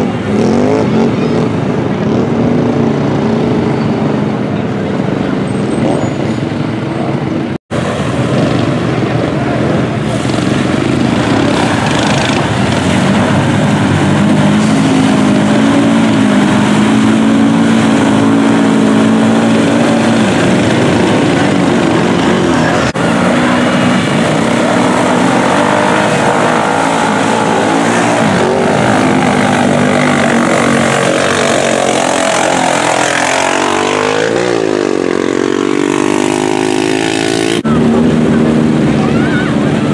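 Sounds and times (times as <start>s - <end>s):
quad engines revving: 0.0s - 39.9s.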